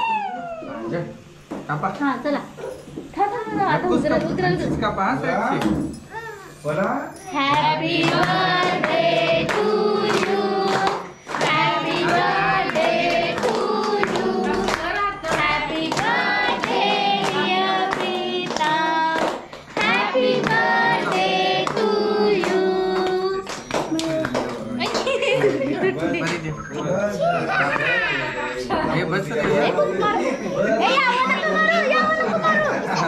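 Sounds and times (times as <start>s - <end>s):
group of voices singing: 7.4s - 23.5s
handclaps keeping time: 7.5s - 25.2s.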